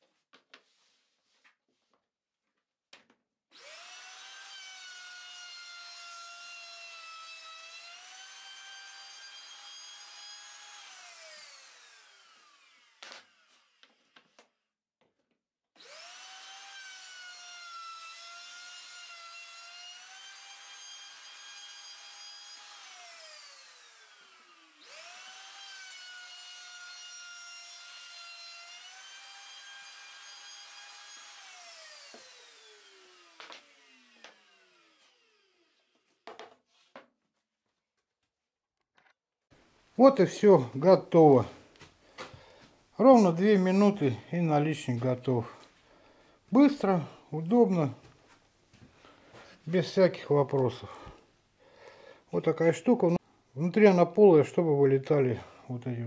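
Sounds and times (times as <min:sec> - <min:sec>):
router motor high whine: 0:03.5 - 0:14.2, 0:15.8 - 0:36.1
clicks and knocks of handled wood: 0:36.2 - 0:37.2.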